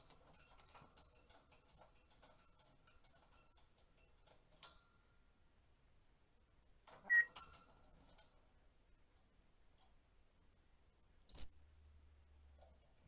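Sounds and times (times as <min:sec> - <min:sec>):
parrot chirp with clicks: 0:07.0 - 0:07.4, 0:11.3 - 0:11.6.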